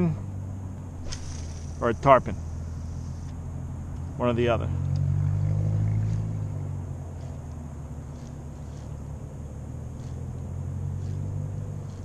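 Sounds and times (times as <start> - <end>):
motorboat engine drone: 0.0 - 5.2.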